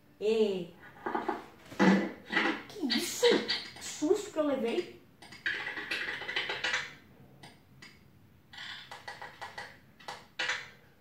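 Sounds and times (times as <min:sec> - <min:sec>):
computer keyboard typing: 0:04.7 - 0:10.8.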